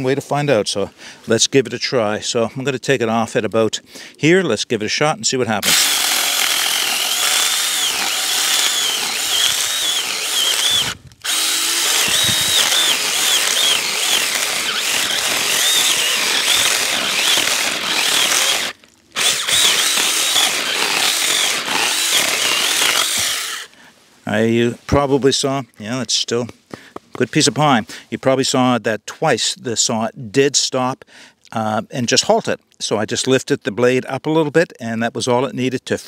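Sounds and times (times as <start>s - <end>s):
chainsaw cutting wood: 5.6s - 23.8s.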